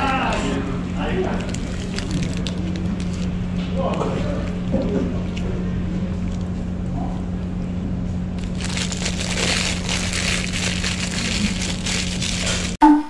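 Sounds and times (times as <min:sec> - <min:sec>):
paper wrapper crinkling: 0:00.0 - 0:05.4, 0:08.4 - 0:12.8.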